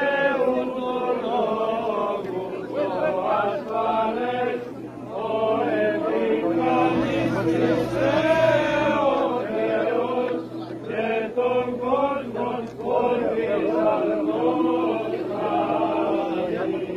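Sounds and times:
group of voices chanting: 0.0 - 16.9
held drone note: 4.1 - 16.9.

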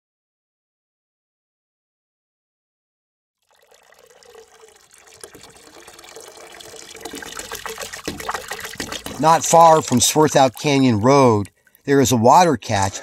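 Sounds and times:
water running and splashing: 3.4 - 12.4.

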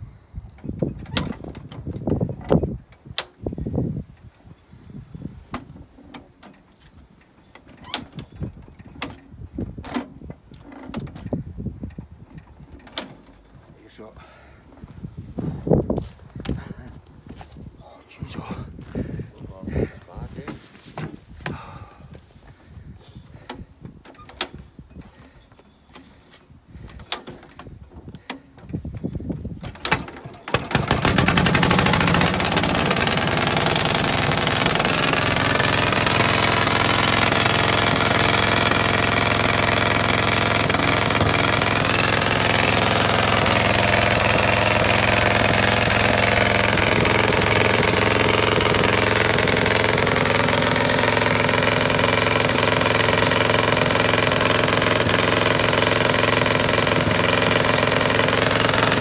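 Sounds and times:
small engine hand-cranked and running: 29.8 - 59.0.

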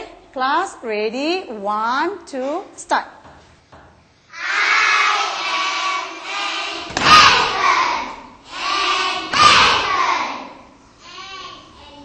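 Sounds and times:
children chanting in unison: 4.3 - 12.0
loud thumps: 6.7 - 7.8, 9.1 - 10.0.

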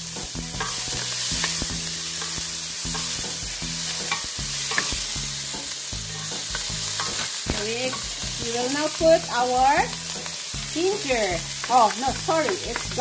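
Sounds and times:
onion sizzling in hot oil: 0.0 - 13.0
utensil scraping pan: 0.6 - 5.2.

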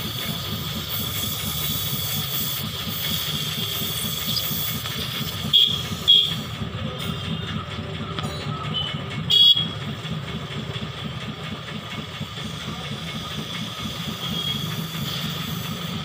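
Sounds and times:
gas torch hissing: 0.0 - 6.8, 12.0 - 16.0.

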